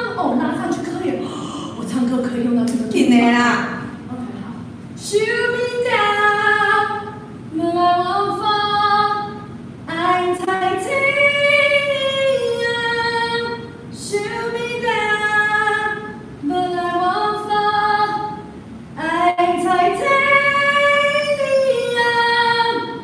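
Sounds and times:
woman singing unaccompanied: 0:05.0 - 0:23.0.

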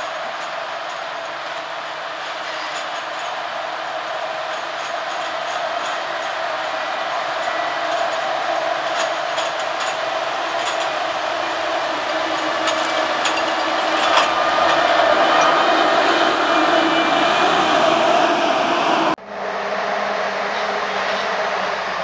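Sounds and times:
diesel engine drone: 0:08.8 - 0:22.0.

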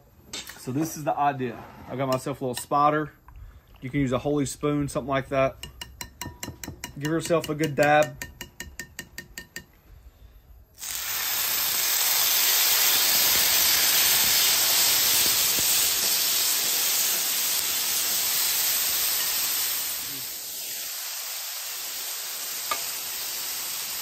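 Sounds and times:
meat sizzling on a griddle: 0:10.8 - 0:24.0.

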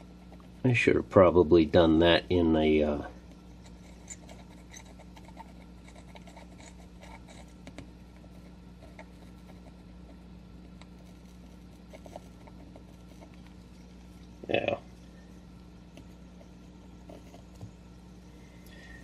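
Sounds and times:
fountain pen scratching on paper: 0:00.0 - 0:00.7, 0:03.6 - 0:14.2, 0:15.9 - 0:17.7
steady low hum: 0:00.0 - 0:19.0.

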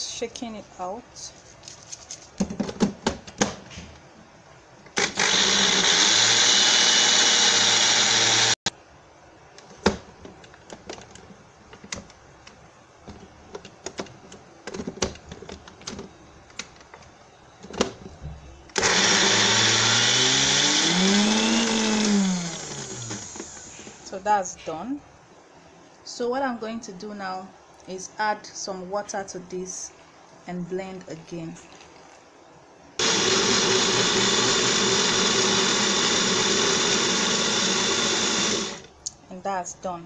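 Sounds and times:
electric blender grinding: 0:05.0 - 0:08.6, 0:18.8 - 0:23.6, 0:33.0 - 0:38.9.

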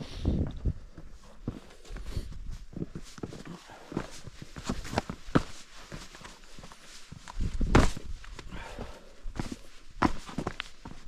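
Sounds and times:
boots on rocky path: 0:00.3 - 0:11.0.

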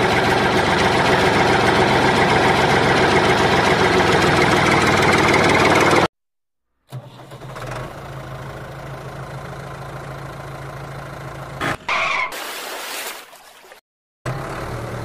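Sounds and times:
vehicle engine running: 0:00.0 - 0:06.1, 0:07.0 - 0:11.9, 0:14.3 - 0:15.0.

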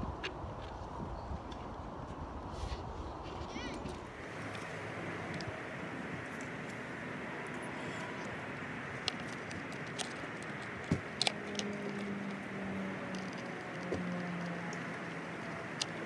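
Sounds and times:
distant traffic: 0:00.0 - 0:16.0
skateboard wheel clicking onto axle: 0:08.9 - 0:16.0.

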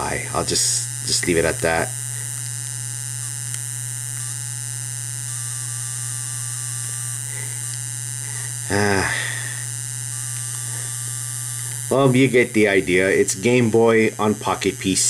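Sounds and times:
short vocal sound: 0:00.0 - 0:00.6, 0:08.2 - 0:09.7
electronic game engine buzz: 0:00.0 - 0:15.0.

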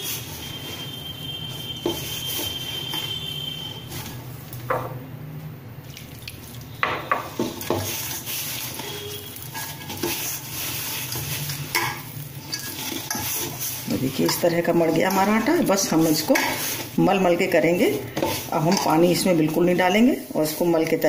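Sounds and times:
dough kneaded by hand in bowl: 0:05.8 - 0:21.0.

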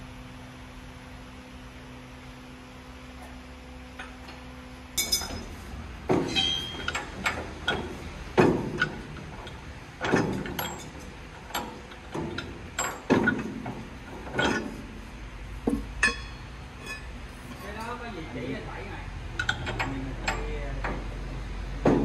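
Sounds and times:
steady hum: 0:00.0 - 0:22.0
steel bar clanking on metal: 0:05.0 - 0:14.8, 0:15.7 - 0:18.0.

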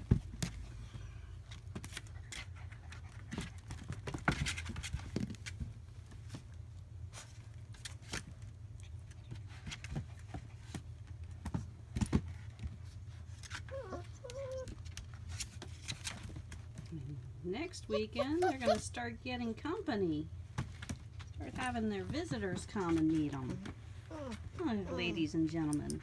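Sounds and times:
puppies scratching in bedding: 0:20.7 - 0:25.8.

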